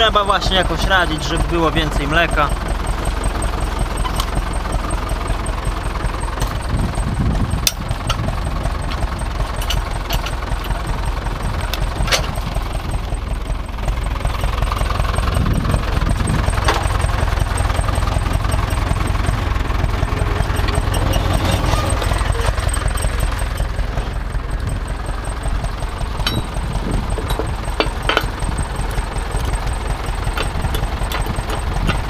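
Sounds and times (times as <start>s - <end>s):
tractor diesel engine running: 0.0s - 32.0s
sharp metallic clicks: 24.6s - 32.0s.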